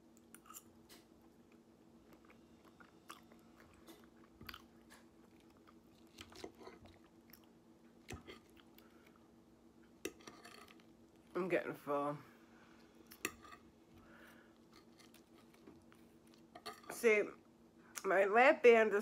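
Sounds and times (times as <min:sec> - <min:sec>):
chewing salad: 0:00.0 - 0:09.2, 0:09.8 - 0:11.3, 0:13.0 - 0:13.7, 0:14.6 - 0:17.0
low steady hum: 0:00.0 - 0:19.0.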